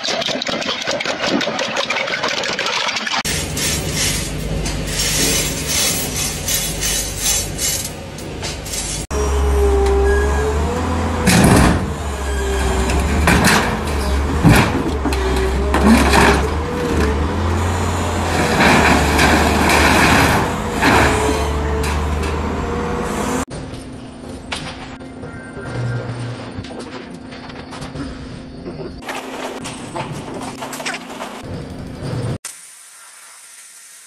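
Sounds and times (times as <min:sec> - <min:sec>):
scrap metal clanking and banging: 0:03.2 - 0:09.1, 0:11.1 - 0:23.5
steel rods clinking on grating: 0:03.3 - 0:09.1
excavator diesel engine running: 0:03.3 - 0:23.5
hydraulic whine: 0:03.3 - 0:23.5.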